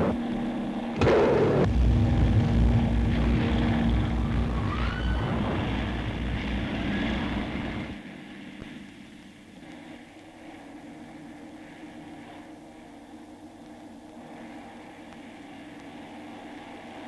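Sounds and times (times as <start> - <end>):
propeller aircraft engines droning: 0.0 - 17.0
rumbling roar: 1.0 - 8.0.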